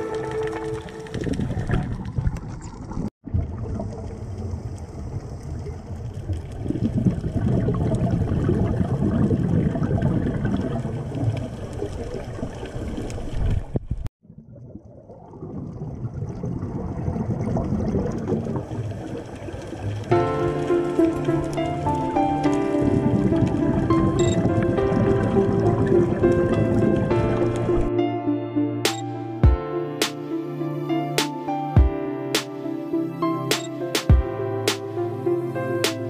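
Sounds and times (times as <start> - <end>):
underwater exhaled bubbles gurgling: 0.0 - 21.6.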